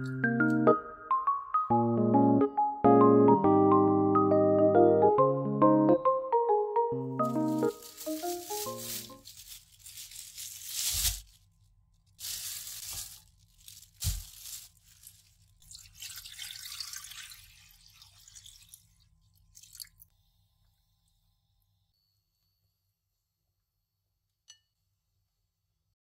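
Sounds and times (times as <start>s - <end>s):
rustling and crackling: 7.2s - 11.4s, 12.2s - 15.3s.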